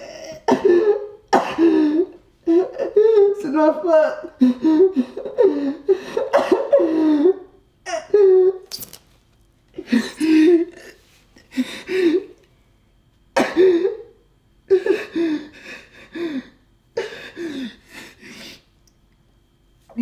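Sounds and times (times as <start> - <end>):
man sobbing: 0.0 - 8.6, 9.8 - 12.4, 14.7 - 18.5.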